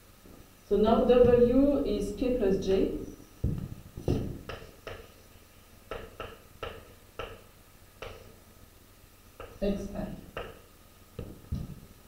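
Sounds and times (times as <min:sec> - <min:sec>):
chalk tapping on blackboard: 0:04.1 - 0:05.2, 0:05.9 - 0:08.3, 0:09.4 - 0:09.6, 0:10.3 - 0:11.4.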